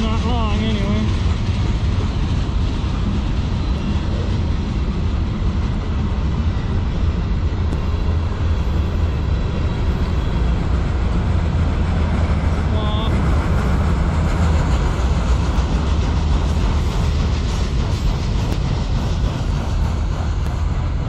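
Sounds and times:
train wheels rumbling on rail: 0.0s - 21.0s.

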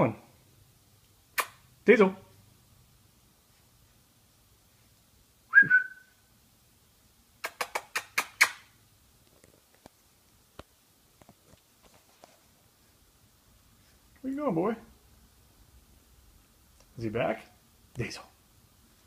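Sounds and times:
sharp smacks: 1.4s - 1.6s, 7.4s - 8.6s
person whistling: 5.5s - 6.1s.

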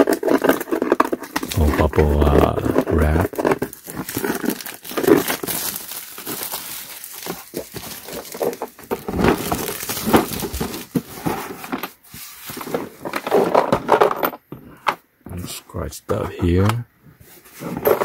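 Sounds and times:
plastic shrink wrap crinkling: 0.0s - 13.4s.

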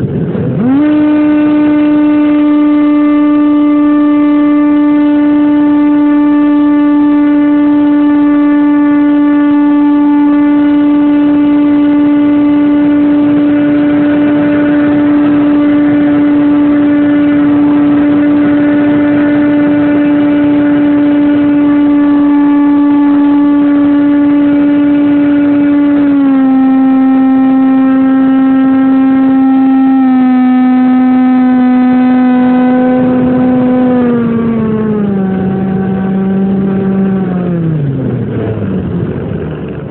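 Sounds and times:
model airplane motor whining: 0.6s - 37.8s.

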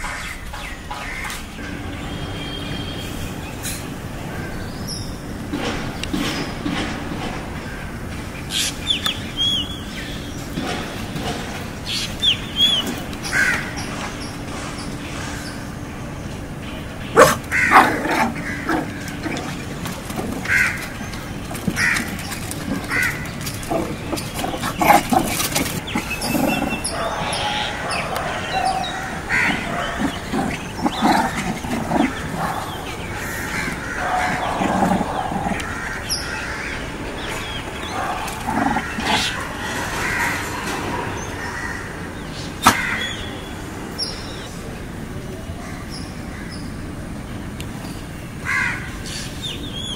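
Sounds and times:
puppies yipping and squealing: 17.2s - 36.1s, 37.4s - 40.6s.

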